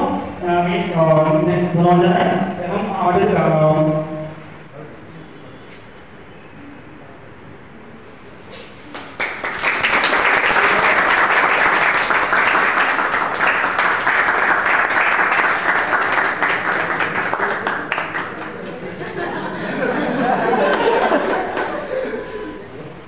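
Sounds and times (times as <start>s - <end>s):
people clapping: 8.8s - 22.5s.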